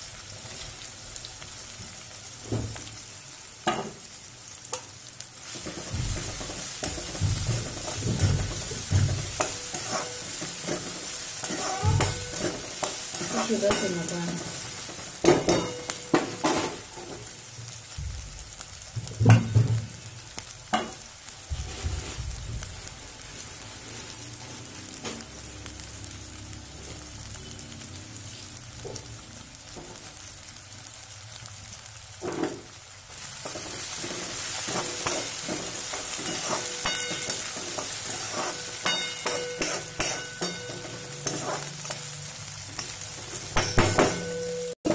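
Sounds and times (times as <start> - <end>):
vegetables sizzling in hot oil: 0.0 - 44.9
steel spoon stirring pan: 4.7 - 17.3, 33.2 - 44.9.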